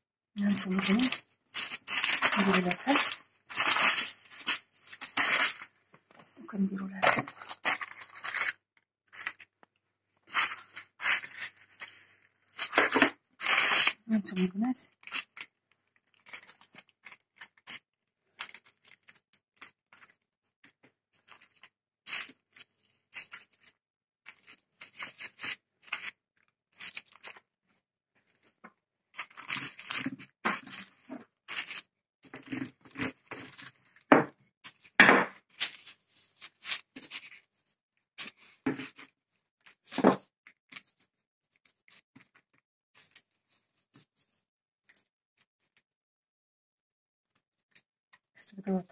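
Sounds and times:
baking paper rustling and crinkling: 0:00.4 - 0:09.6, 0:10.2 - 0:14.0, 0:14.9 - 0:34.1, 0:34.7 - 0:37.6.

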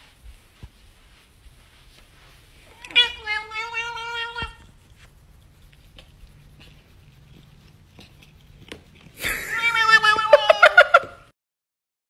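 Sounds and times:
cat meowing: 0:02.6 - 0:04.7, 0:09.3 - 0:11.1.

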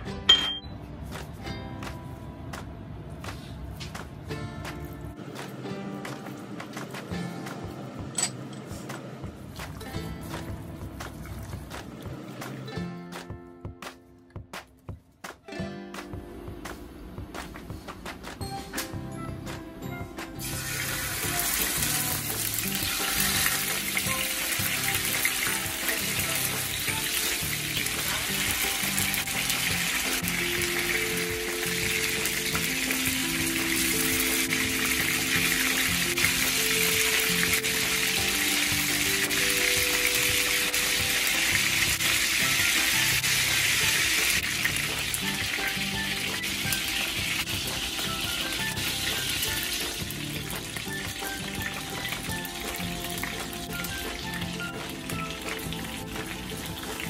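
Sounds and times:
background music: 0:00.0 - 0:57.0
chicken sizzling in hot oil: 0:20.4 - 0:57.0.

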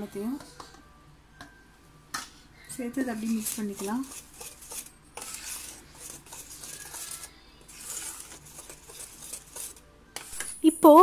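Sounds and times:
spoon scraping metal bowl: 0:03.1 - 0:10.6.

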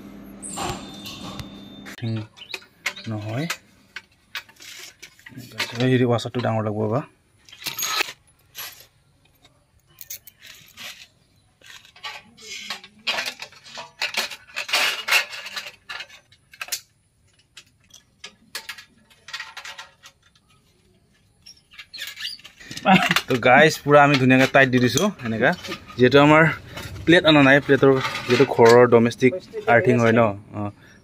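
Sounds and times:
small metallic clinks and rattles: 0:07.4 - 0:30.2.

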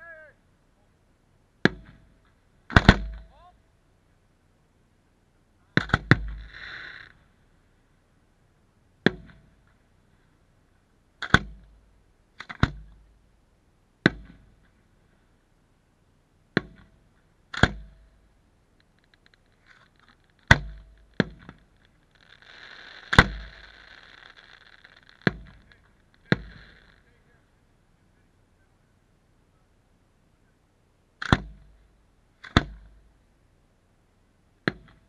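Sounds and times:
firework shells bursting: 0:17.5 - 0:27.3.

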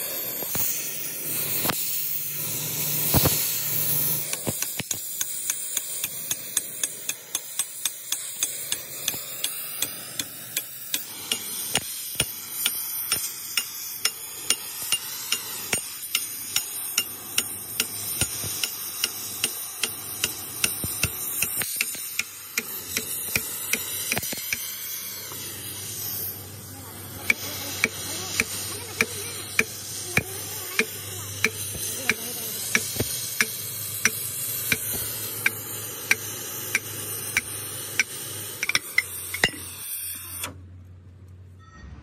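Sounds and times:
continuous high hiss: 0:00.0 - 0:40.6
hammer striking metal: 0:04.3 - 0:24.6, 0:27.3 - 0:39.7.

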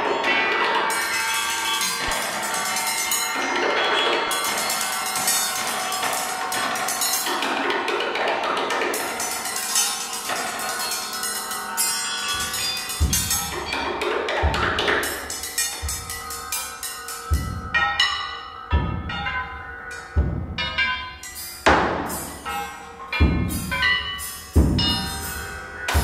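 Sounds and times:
struck metal bowls ringing: 0:00.0 - 0:26.0
heavy low thuds: 0:13.0 - 0:13.7, 0:14.4 - 0:14.9, 0:20.2 - 0:20.7, 0:23.2 - 0:23.8.

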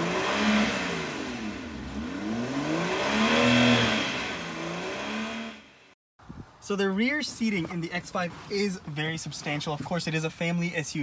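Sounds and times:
car engine revving: 0:00.0 - 0:06.0.

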